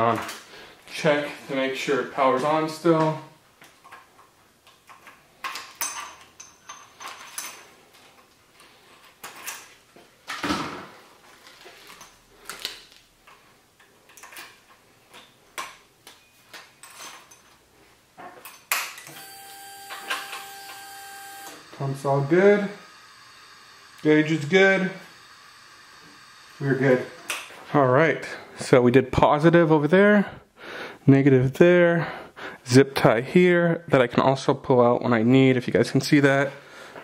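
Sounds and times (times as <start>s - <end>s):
fuel pump electric whine: 19.0s - 27.7s.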